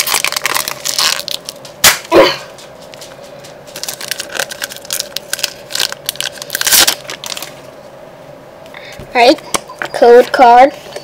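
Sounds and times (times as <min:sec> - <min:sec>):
foil wrapper crinkling: 0:00.0 - 0:02.1, 0:02.9 - 0:07.7.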